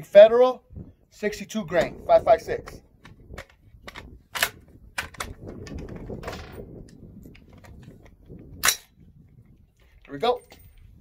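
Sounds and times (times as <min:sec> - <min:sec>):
rifle metallic clicks and clacks: 0:02.6 - 0:09.0
loud rifle clack: 0:03.3 - 0:05.3, 0:08.6 - 0:08.9.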